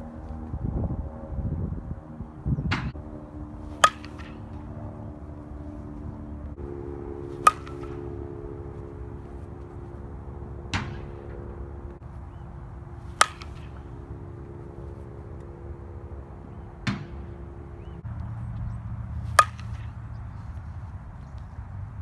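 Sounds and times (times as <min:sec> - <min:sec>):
low hum: 0:00.0 - 0:22.0
bat hitting softballs: 0:02.7 - 0:18.0, 0:19.1 - 0:20.8.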